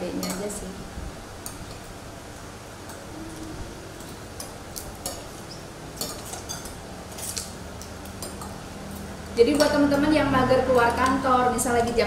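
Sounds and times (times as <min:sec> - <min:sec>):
cutlery clinking on plates: 0:06.0 - 0:07.5.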